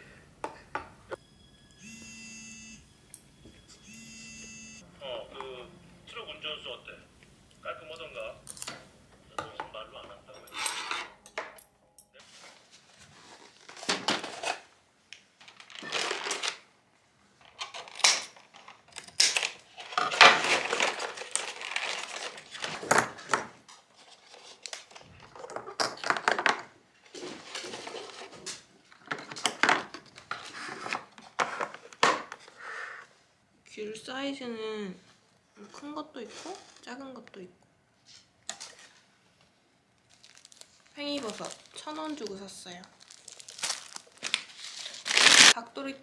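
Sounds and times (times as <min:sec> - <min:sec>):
plastic bag rustling: 0:15.4 - 0:16.7, 0:19.4 - 0:23.3, 0:40.0 - 0:45.6
plastic egg cartons crinkling: 0:15.4 - 0:16.7, 0:17.4 - 0:32.0, 0:40.0 - 0:45.6.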